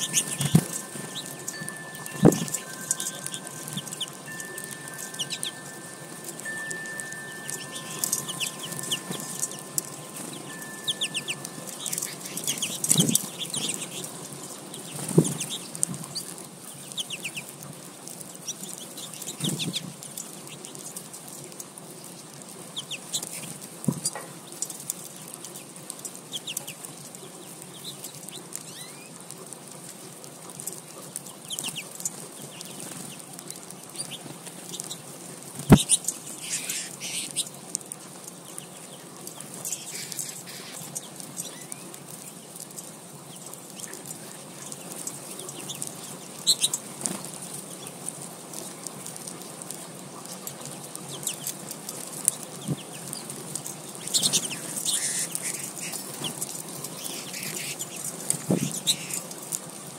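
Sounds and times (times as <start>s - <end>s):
finches twittering: 0.0s - 15.8s, 35.6s - 37.5s, 39.5s - 41.9s, 54.0s - 59.3s.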